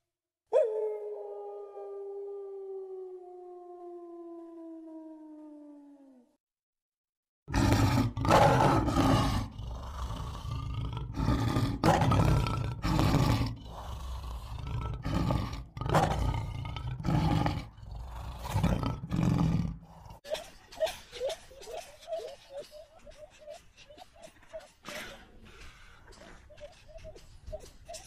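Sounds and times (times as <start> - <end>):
lion roaring: 7.5 - 20.2.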